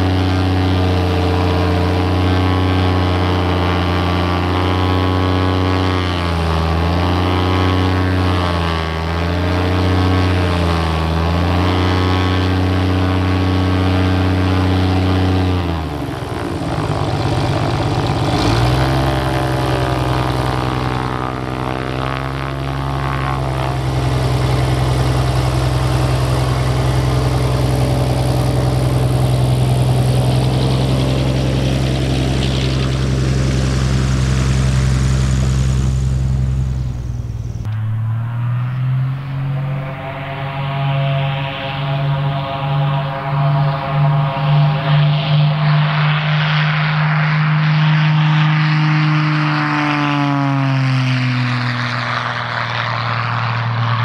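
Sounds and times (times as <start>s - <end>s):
airplane propeller engine droning: 0.0s - 54.0s.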